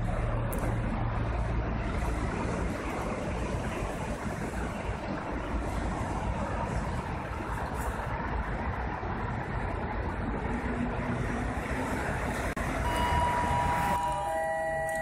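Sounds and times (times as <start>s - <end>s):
railway station rumble: 0.0s - 15.0s
electric train high tones: 12.7s - 15.0s.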